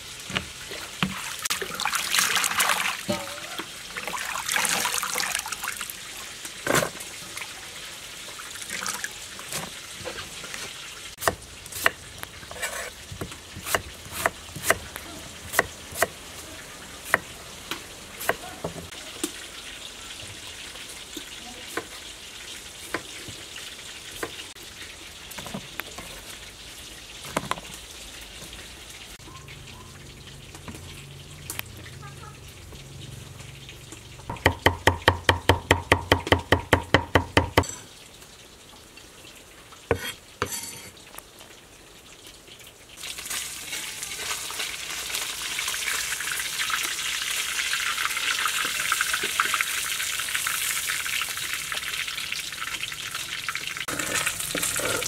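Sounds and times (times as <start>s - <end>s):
tap water running: 0.0s - 16.3s, 17.0s - 32.0s, 32.6s - 41.6s, 44.5s - 55.0s.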